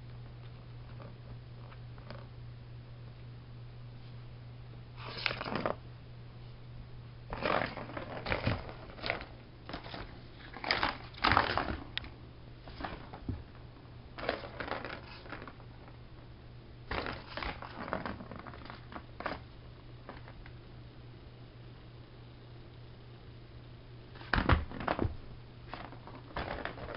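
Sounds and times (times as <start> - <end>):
toy clattering and scraping: 7.3 - 12.0, 14.2 - 16.0, 25.7 - 26.9.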